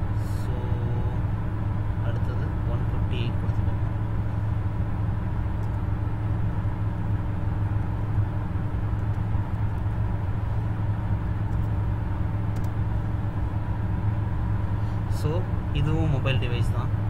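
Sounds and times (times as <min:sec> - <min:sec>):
faint hum: 0:00.0 - 0:17.0
low rumbling background noise: 0:00.0 - 0:17.0
computer keys clicking: 0:12.5 - 0:12.8.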